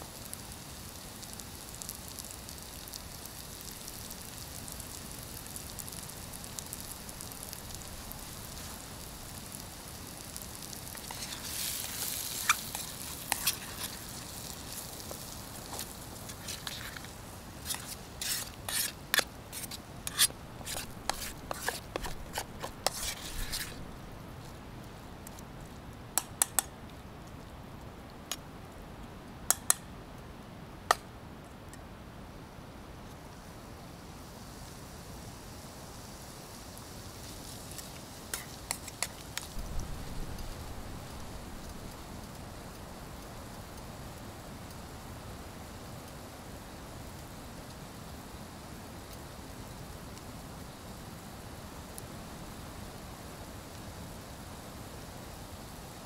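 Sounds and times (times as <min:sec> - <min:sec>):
food sizzling in a pan: 0:00.0 - 0:24.6, 0:33.4 - 0:56.0
utensil scraping against pan: 0:10.6 - 0:23.9, 0:38.3 - 0:39.5.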